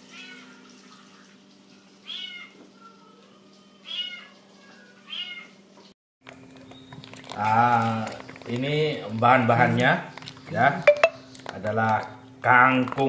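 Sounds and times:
cat meowing: 2.0 - 2.6, 3.8 - 5.6.

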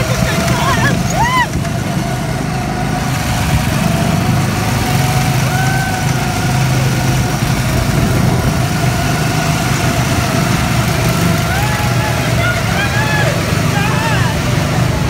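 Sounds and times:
go-kart engine running: 0.0 - 15.0.

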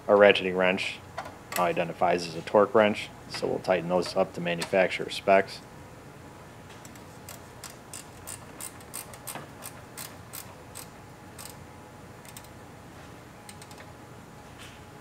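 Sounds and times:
ratcheting wrench clicking: 6.8 - 11.6, 12.2 - 12.5.

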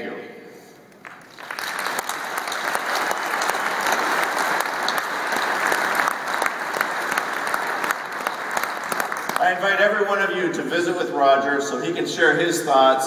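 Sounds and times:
large audience applauding: 0.9 - 9.7.

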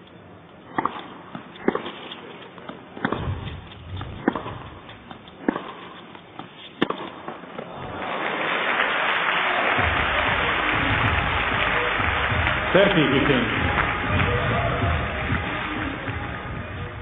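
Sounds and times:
tennis ball struck with racket: 0.7 - 7.7
crowd applause: 7.6 - 17.0.

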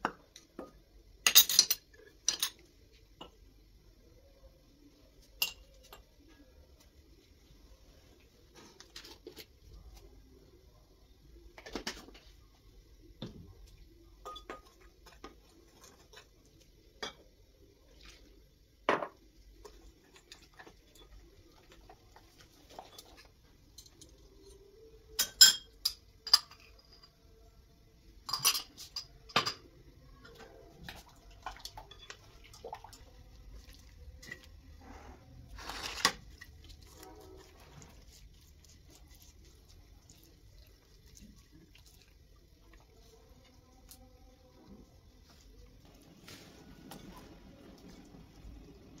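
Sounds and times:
dishes and utensils clinking: 0.0 - 3.4, 5.3 - 6.1, 14.2 - 16.3, 25.1 - 27.2, 28.2 - 30.6, 31.4 - 32.7.

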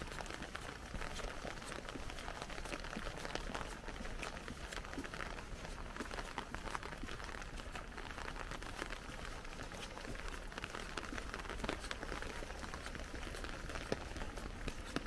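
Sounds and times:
rain pattering on umbrella: 0.0 - 15.0.

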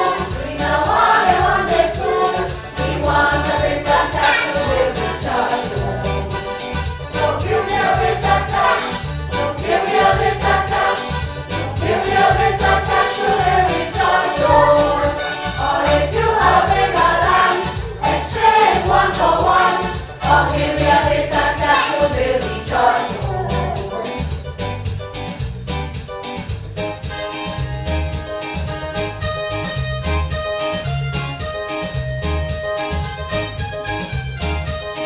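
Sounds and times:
choir singing: 0.0 - 24.2
instrumental backing with steady beat: 0.0 - 35.0.

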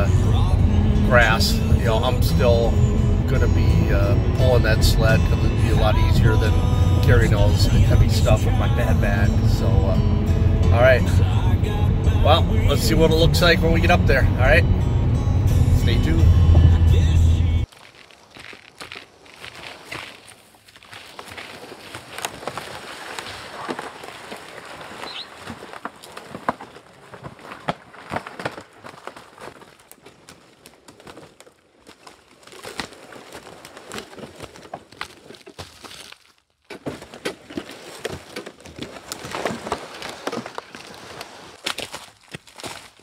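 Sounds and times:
footsteps crunching on trail: 17.6 - 43.0.

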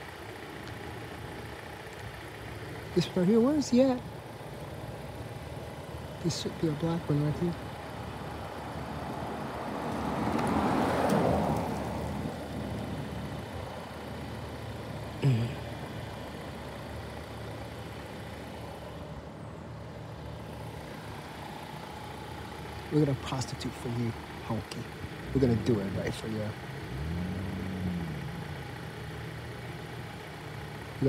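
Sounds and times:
low traffic hum: 0.0 - 31.0
car driving past on asphalt: 9.0 - 13.2, 26.7 - 29.5.

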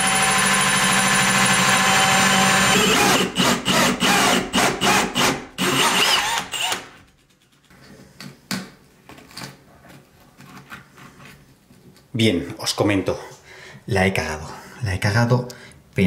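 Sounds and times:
cordless drill cutting wood: 0.0 - 6.9
screwdriver scraping wood: 1.0 - 7.1.

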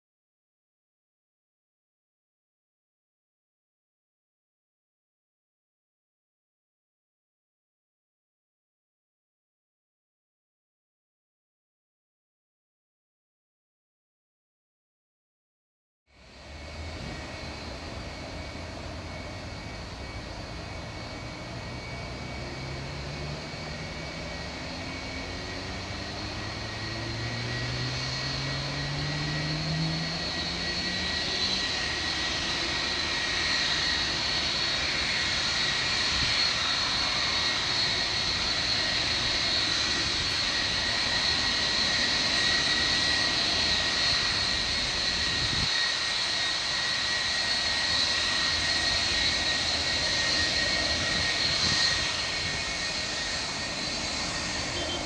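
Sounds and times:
jet engines whining: 16.2 - 55.0.

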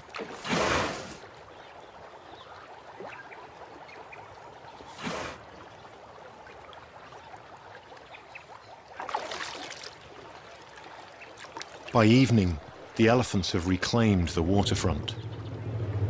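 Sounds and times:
water trickling: 0.0 - 13.3
river water splashing: 0.0 - 16.0.

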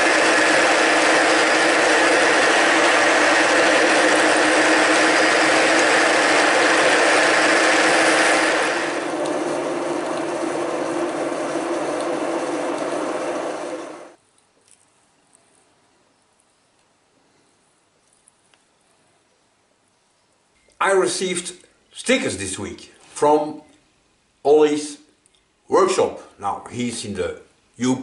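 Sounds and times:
gear whine: 0.0 - 14.2
milling machine drilling steel: 0.0 - 14.2.

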